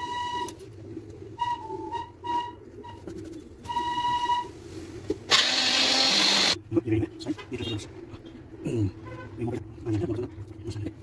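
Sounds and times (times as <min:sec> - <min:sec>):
short high whistle-like tones: 0:03.6 - 0:04.6
electric mixer grinder whirring: 0:05.3 - 0:06.6.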